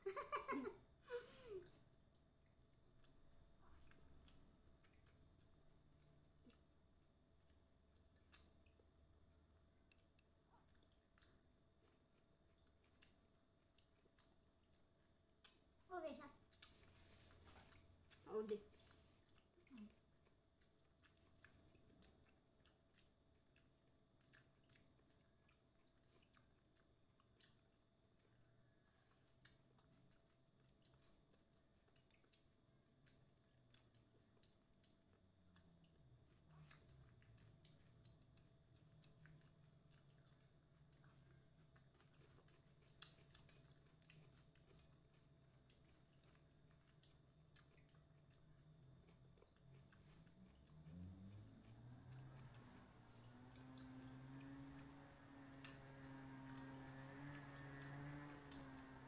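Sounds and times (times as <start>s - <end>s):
low steady hum: 0.0s - 59.0s
people chewing: 0.0s - 59.0s.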